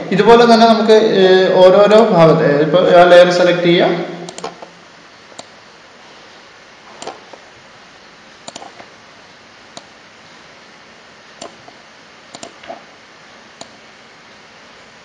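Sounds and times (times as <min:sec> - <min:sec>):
faint steady hiss: 0:00.0 - 0:15.0
computer mouse clicking: 0:04.3 - 0:04.7, 0:05.4 - 0:05.6, 0:07.0 - 0:07.4, 0:08.4 - 0:08.9, 0:09.7 - 0:10.0, 0:11.4 - 0:12.8, 0:13.6 - 0:13.8.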